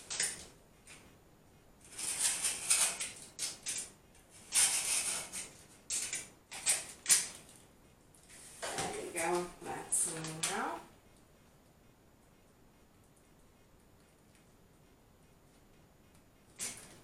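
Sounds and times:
knife scraping through sticker sheet: 4.4 - 7.3.

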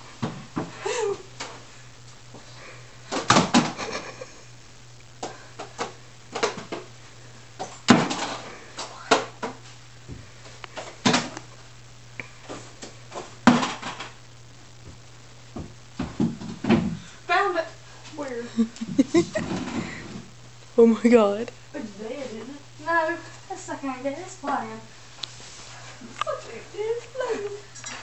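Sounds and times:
low hum: 0.0 - 24.2
objects knocking and bumping: 14.8 - 17.1, 19.2 - 20.3.

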